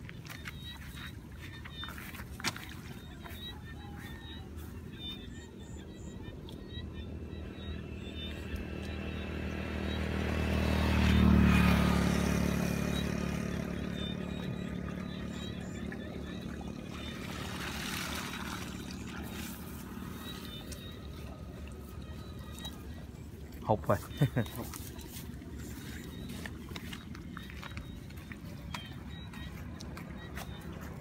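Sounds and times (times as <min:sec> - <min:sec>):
passing vehicle engine: 0:07.0 - 0:31.0.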